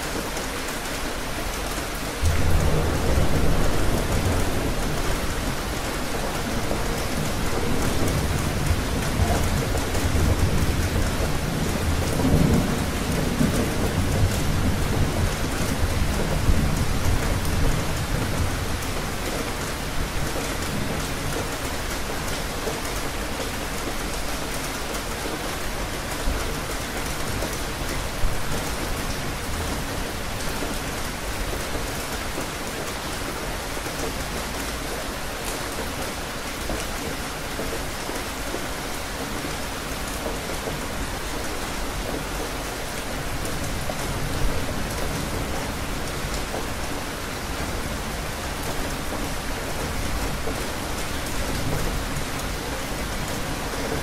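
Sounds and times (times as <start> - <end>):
steady rain falling: 0.0 - 54.0
low thunder rumbling: 2.2 - 18.8.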